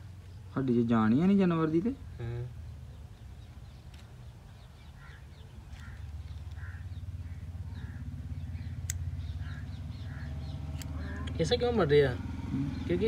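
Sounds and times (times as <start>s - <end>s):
crows cawing: 4.9s - 11.5s.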